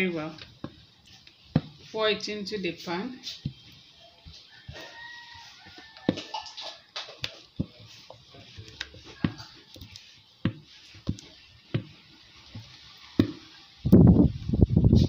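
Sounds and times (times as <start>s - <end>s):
utensils clicking on bowl: 6.0s - 10.1s.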